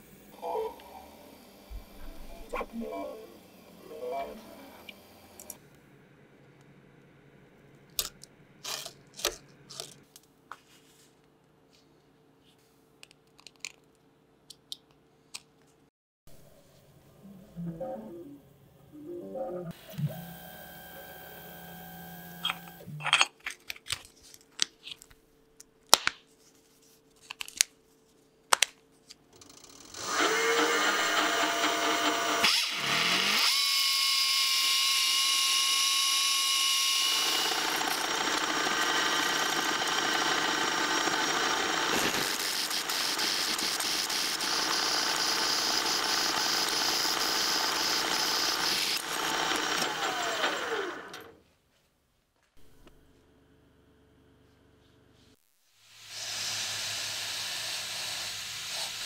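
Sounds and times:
metal lathe running: 29.7 - 33.8, 35.4 - 51.3.

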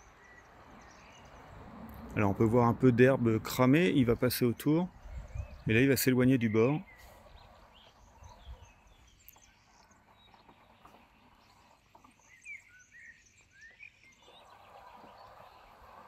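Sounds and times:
faint bird chirps: 4.9 - 16.0.

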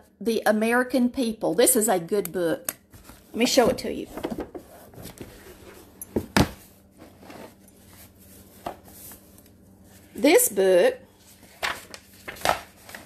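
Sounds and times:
book knocks and rustles: 6.1 - 7.2.

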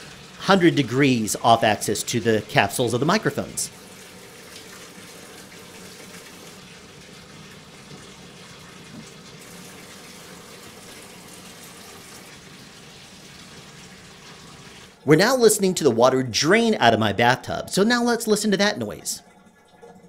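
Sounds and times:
tap running into bathtub: 3.9 - 14.9.

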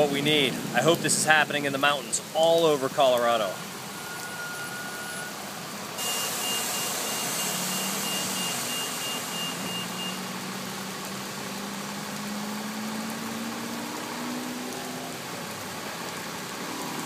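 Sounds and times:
heavy rain on pavement: 0.0 - 17.0
high electronic beeps: 3.9 - 5.4, 6.0 - 10.4.

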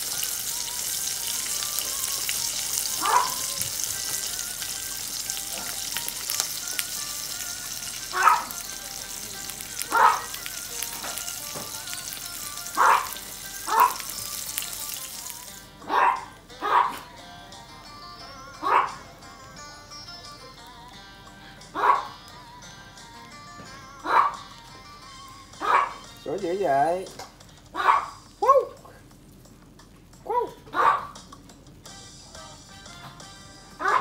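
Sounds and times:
fish sizzling in oil: 0.0 - 15.7.

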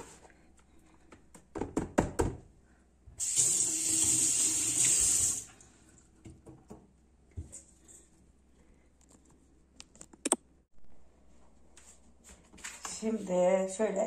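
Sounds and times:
water tap running into sink: 3.2 - 5.5.

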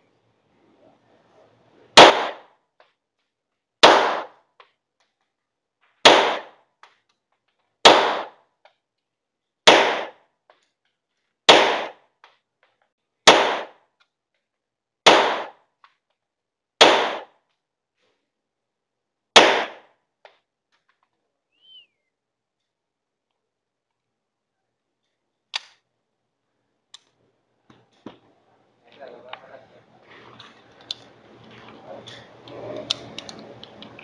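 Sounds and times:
pistol shots with echo: 2.0 - 2.5, 3.8 - 4.4, 6.0 - 6.6, 7.8 - 8.4, 9.6 - 10.2, 11.5 - 12.0, 13.2 - 13.8, 15.0 - 15.6, 16.8 - 17.4, 19.4 - 19.9.

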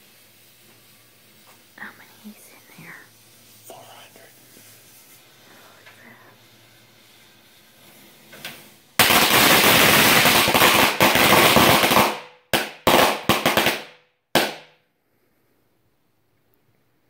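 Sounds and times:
firecrackers banging: 4.4 - 14.8.

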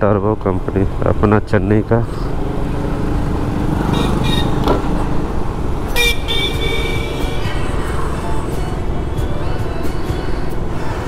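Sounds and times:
traffic rumble: 0.0 - 11.0
long car horn honk: 3.9 - 4.6, 5.9 - 7.6
car horn toots: 3.9 - 4.7, 5.9 - 7.5.

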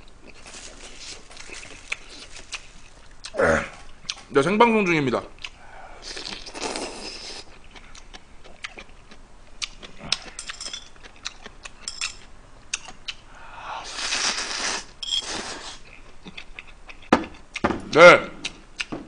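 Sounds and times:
chewing: 0.0 - 4.3, 5.4 - 13.2, 15.2 - 17.6
man slurping noodles: 6.0 - 7.5, 13.8 - 15.8.

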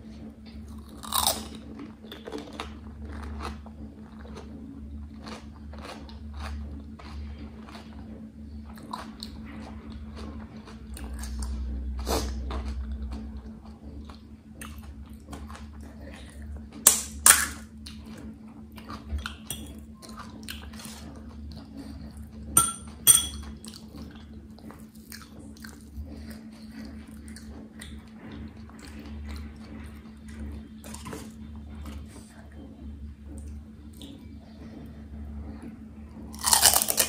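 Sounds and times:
chewing crisp snacks: 0.5 - 22.5, 23.5 - 32.4, 36.3 - 37.0
crisp shells crunching: 36.4 - 37.0.

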